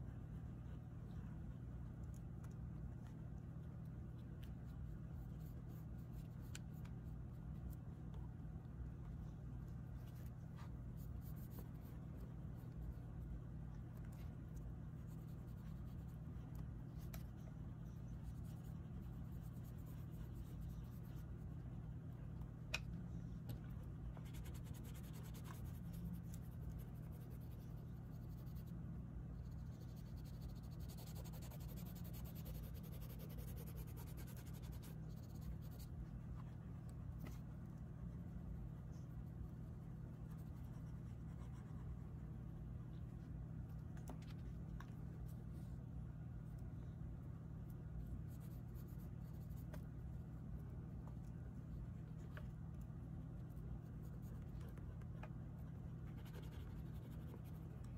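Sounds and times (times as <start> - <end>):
steady low hum: 0.0 - 57.9
pastel scratching on paper: 24.2 - 28.7, 29.4 - 36.0, 56.0 - 57.7.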